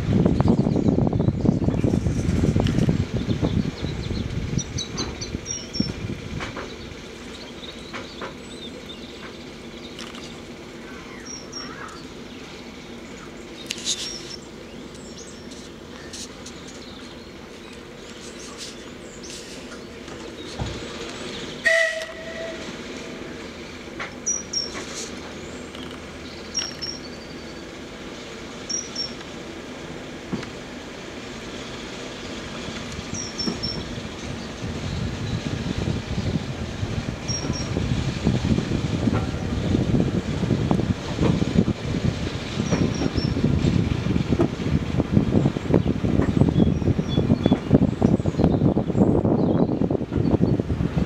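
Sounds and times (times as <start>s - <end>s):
diesel engine drone: 0.0s - 47.0s
train wheels clicking and knocking: 4.8s - 10.4s, 23.9s - 27.1s, 30.2s - 30.7s, 32.3s - 45.0s.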